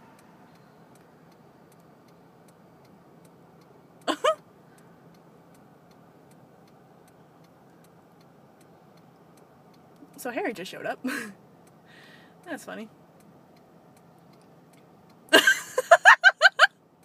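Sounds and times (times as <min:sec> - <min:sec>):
car indicator ticking: 0:00.5 - 0:10.3, 0:11.4 - 0:11.8, 0:12.4 - 0:15.3.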